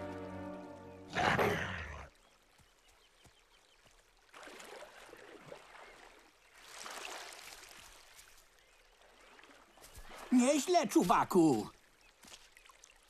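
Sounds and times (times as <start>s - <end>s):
water splashing from swimming animals: 3.8s - 10.4s, 12.0s - 13.0s.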